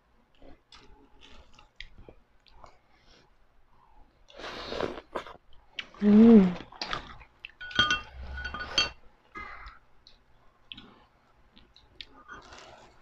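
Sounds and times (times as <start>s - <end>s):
person humming: 6.0s - 6.6s
glass and dishes clinking: 7.6s - 9.0s.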